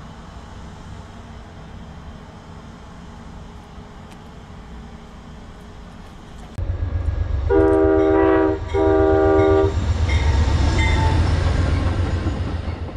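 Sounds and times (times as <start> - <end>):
train rumbling past: 0.0 - 12.9
locomotive air horn blasts: 7.5 - 9.8.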